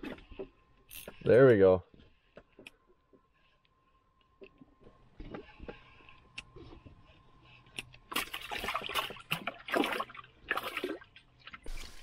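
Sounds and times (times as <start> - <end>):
water splashing in ice hole: 8.1 - 12.0.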